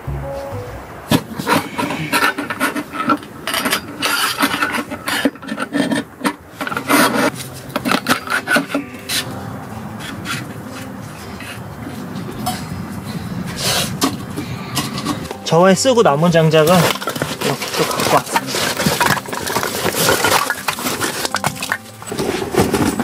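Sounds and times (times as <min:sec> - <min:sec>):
logs scraping and knocking: 0:00.1 - 0:09.3, 0:16.2 - 0:23.0.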